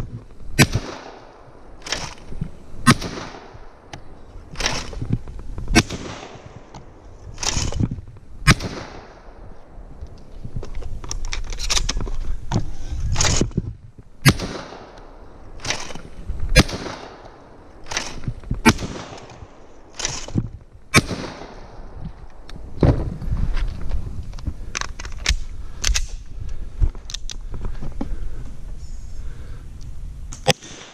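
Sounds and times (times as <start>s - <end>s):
shotgun shots: 0.6s - 3.9s, 4.6s - 5.0s, 5.7s - 6.7s, 8.4s - 9.4s, 14.2s - 15.0s, 15.6s - 20.3s, 20.9s - 21.9s, 30.4s - 30.9s.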